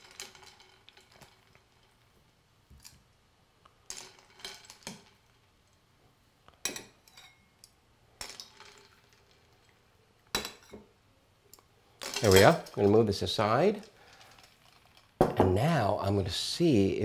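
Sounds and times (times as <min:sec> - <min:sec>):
metal tongs clinking on glass: 0:06.7 - 0:07.5, 0:12.0 - 0:13.0.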